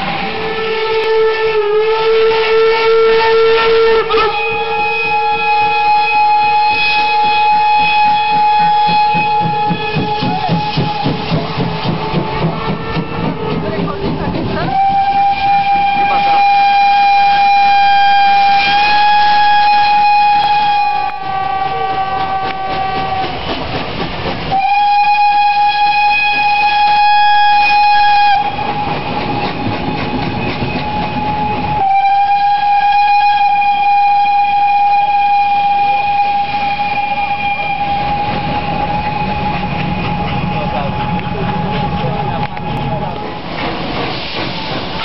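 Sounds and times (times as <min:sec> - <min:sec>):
steam locomotive whistle blasts: 0:00.0 - 0:13.6, 0:14.6 - 0:23.6, 0:24.5 - 0:40.6
rushing noise: 0:04.4 - 0:25.6, 0:35.2 - 0:45.0.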